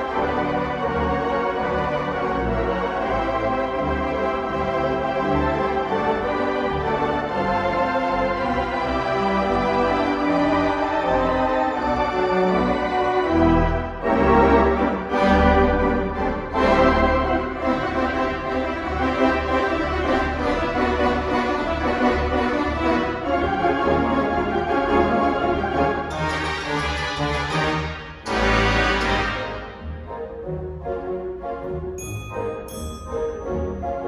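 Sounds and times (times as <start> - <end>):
pipe organ playing chords: 0.0 - 32.0.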